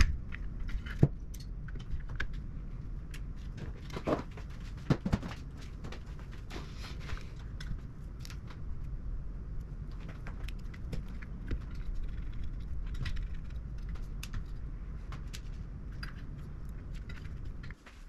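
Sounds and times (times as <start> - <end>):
steady low rumble: 0.0 - 18.0.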